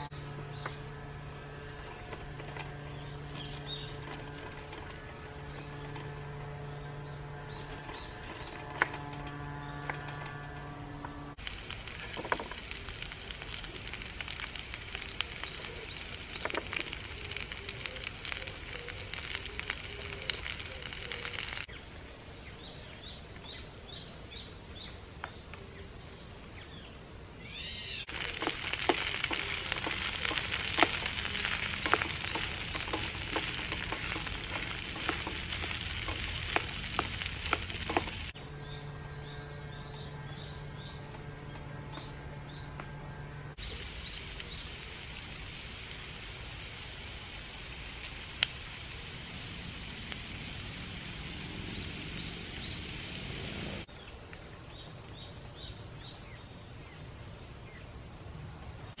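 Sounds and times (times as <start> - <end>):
onion sizzling in a frying pan: 11.4 - 21.7, 28.1 - 38.4, 43.6 - 53.9
spoon stirring in a pan: 28.2 - 38.3.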